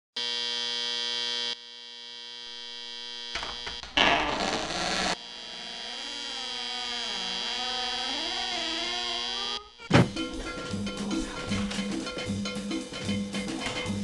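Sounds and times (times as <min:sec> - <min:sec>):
digital alarm clock buzzing: 0:02.8 - 0:09.8.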